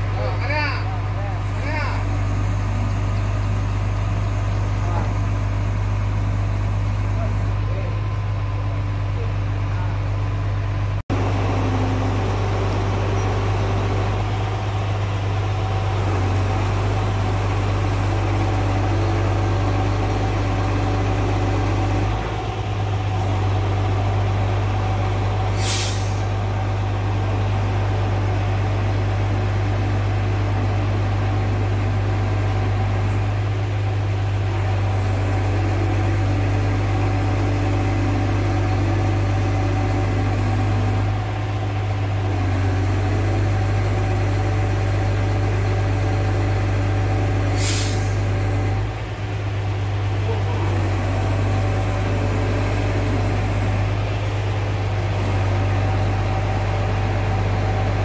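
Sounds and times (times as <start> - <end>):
crane engine running: 0.0 - 58.0
short hiss: 25.6 - 26.3.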